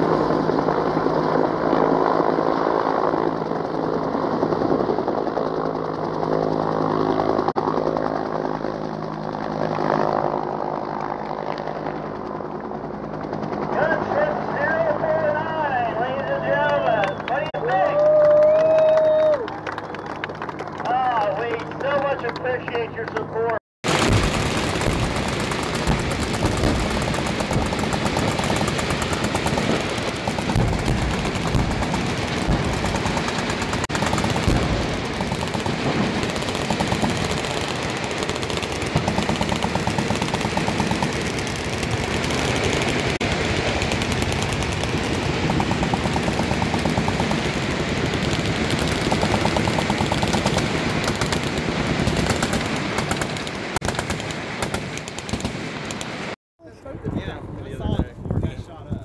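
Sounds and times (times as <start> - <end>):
massed machine-gun fire: 23.8 - 56.4.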